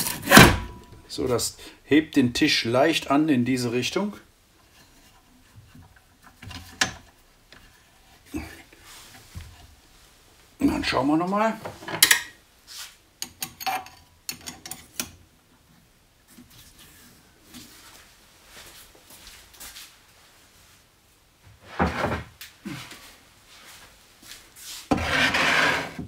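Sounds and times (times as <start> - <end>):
hand tools clicking and knocking: 13.2 - 15.2.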